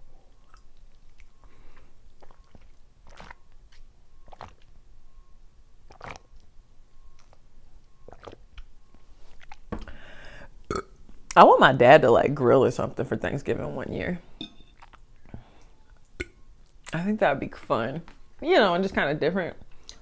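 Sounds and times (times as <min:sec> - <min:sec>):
gulping and swallowing water: 0:02.1 - 0:03.6, 0:04.2 - 0:04.8, 0:05.9 - 0:06.4, 0:08.0 - 0:08.6, 0:10.7 - 0:11.0.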